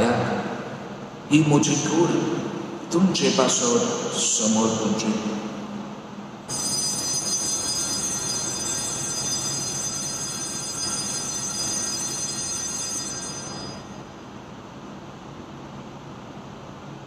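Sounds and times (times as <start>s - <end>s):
altar bells ringing: 6.5s - 14.2s.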